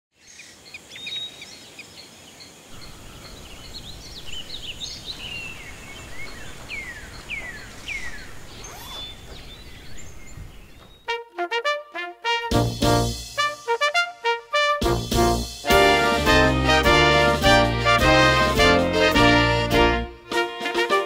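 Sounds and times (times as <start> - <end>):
birds chirping and calling: 0.2 - 11.1
falling whistled bird calls: 2.7 - 11.1.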